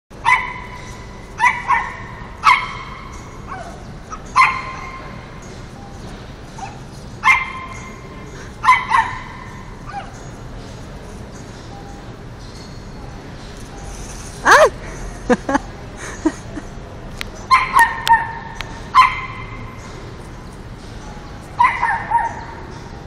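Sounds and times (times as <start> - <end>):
small dog yapping: 21.6 - 22.6.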